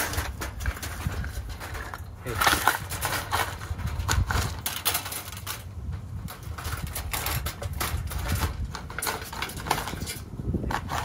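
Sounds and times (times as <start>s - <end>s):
wire-mesh trap clicking and rattling: 0.0s - 11.0s.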